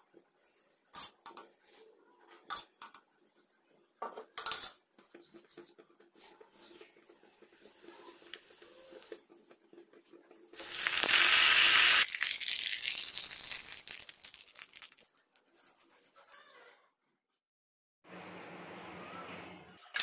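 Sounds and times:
spices sizzling in hot oil: 6.5 - 9.2, 10.6 - 15.1.

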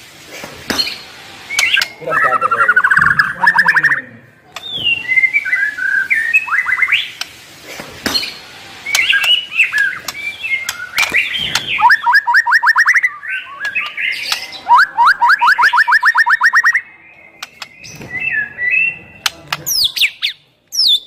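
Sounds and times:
songbird singing varied song: 1.5 - 7.2, 8.2 - 21.0.

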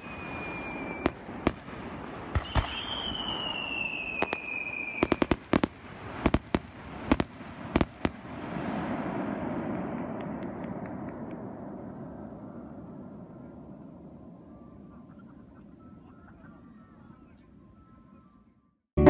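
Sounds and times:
fireworks bursting with bangs: 0.0 - 13.2.

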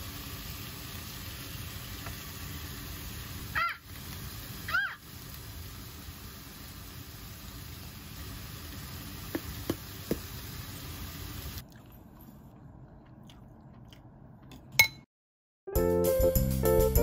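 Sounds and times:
vegetables sizzling in a wok: 0.0 - 11.6.

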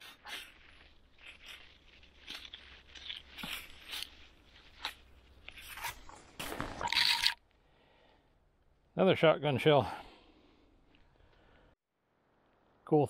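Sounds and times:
dry leaves crunching underfoot: 0.0 - 6.8.

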